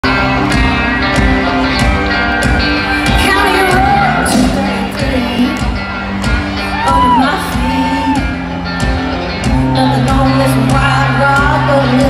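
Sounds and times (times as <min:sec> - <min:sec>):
country-rock band playing: 0:00.0 - 0:12.0
woman singing into microphone: 0:03.0 - 0:05.7, 0:06.8 - 0:08.3, 0:09.6 - 0:12.0.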